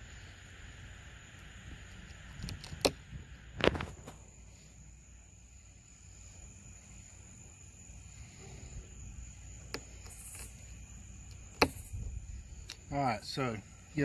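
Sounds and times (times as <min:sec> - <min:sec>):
night insects droning: 0:00.0 - 0:14.0.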